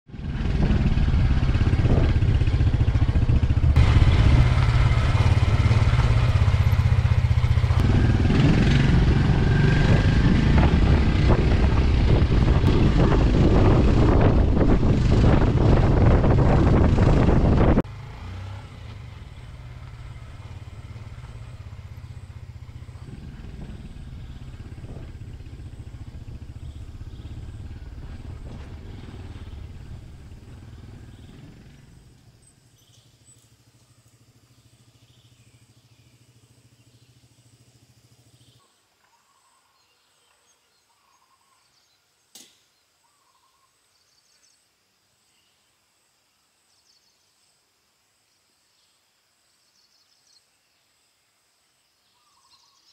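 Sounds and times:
motorcycle engine running: 0.1s - 38.6s
faint bird calls: 38.2s - 44.6s, 52.0s - 52.9s
sharp click: 42.3s - 42.7s.

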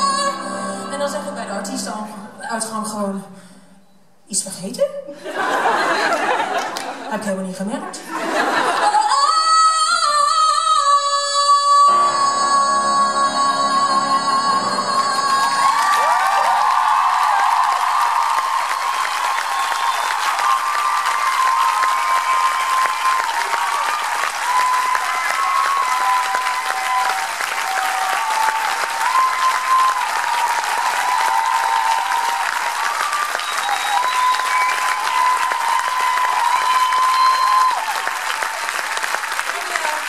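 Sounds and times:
audience applauding: 5.4s - 7.1s, 14.9s - 40.0s.

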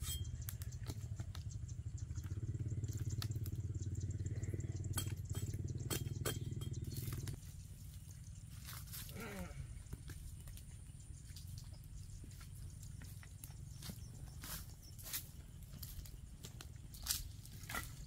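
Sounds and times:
small engine humming: 0.0s - 7.9s.

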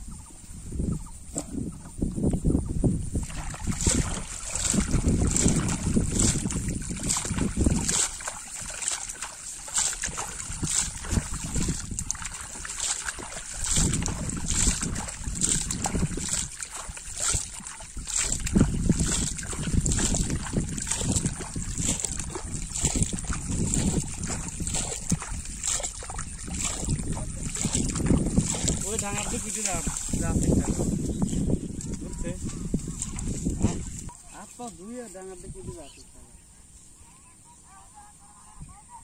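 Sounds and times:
wind rumble on microphone: 0.0s - 36.4s
water splashing into bucket: 3.1s - 31.0s, 31.7s - 34.2s.

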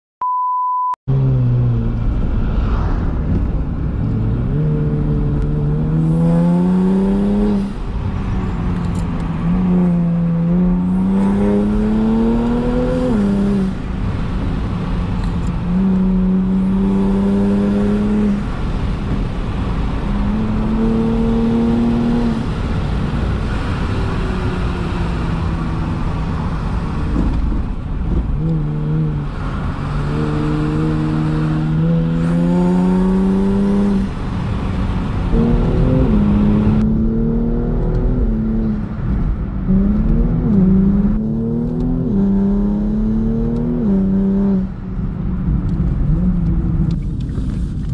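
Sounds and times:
car engine accelerating through gears: 1.1s - 47.9s.

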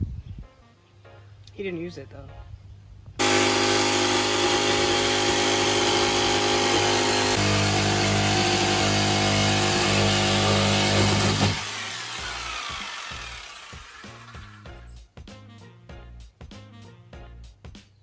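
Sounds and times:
power tool trimming: 3.2s - 14.7s.

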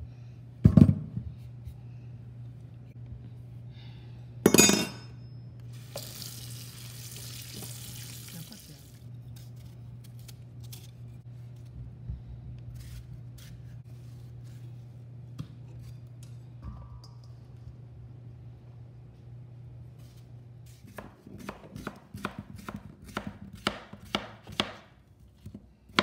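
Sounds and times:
low steady hum: 0.0s - 26.0s
running tap water: 5.8s - 9.0s.

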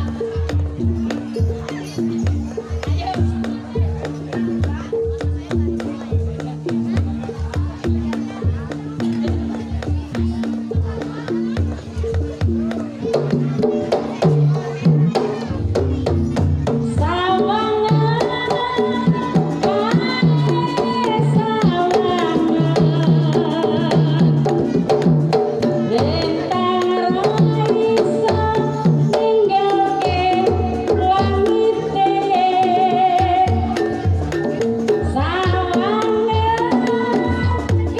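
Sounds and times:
gamelan: 0.0s - 37.9s
woman singing a melody: 16.9s - 24.4s, 25.9s - 33.8s, 35.0s - 37.9s.

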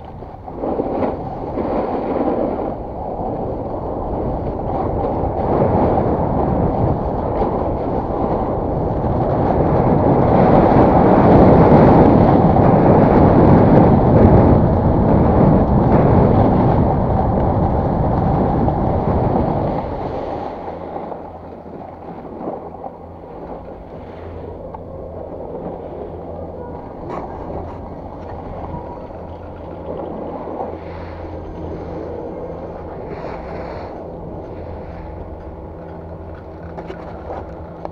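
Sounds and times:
low steady hum: 0.0s - 37.9s
wind on microphone: 0.0s - 37.9s
snowboard scraping on snow: 0.5s - 2.7s.

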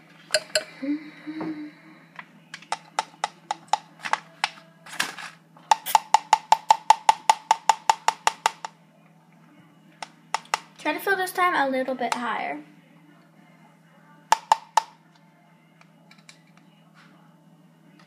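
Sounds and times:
spoon tapping rim of cup: 0.4s - 0.7s.

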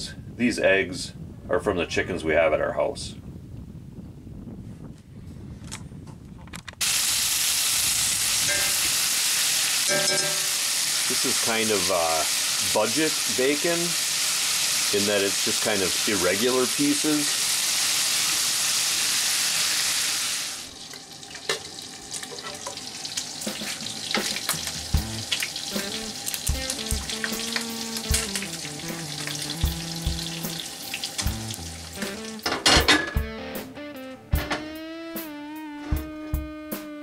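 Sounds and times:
bacon sizzling in skillet: 6.8s - 32.5s
background music: 23.5s - 37.0s.

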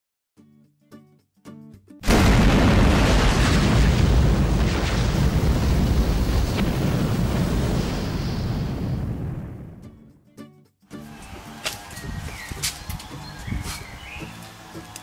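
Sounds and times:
fireball explosion rumbling: 2.0s - 9.9s.

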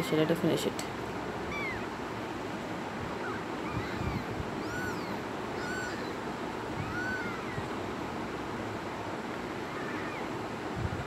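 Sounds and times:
kittens mewing: 1.4s - 2.0s, 3.1s - 7.8s.

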